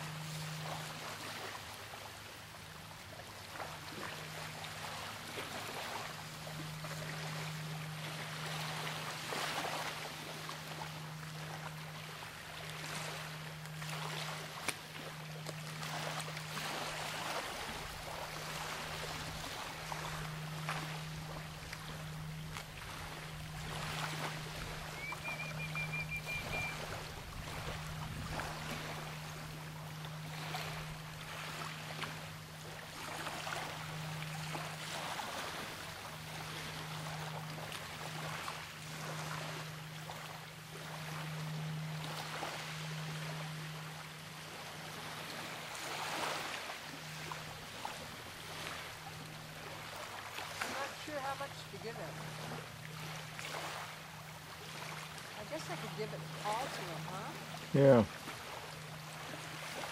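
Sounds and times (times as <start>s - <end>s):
low steady hum: 0.0s - 59.9s
water rushing along shore: 0.0s - 59.9s
wind: 0.0s - 59.9s
short high trill: 24.9s - 27.0s.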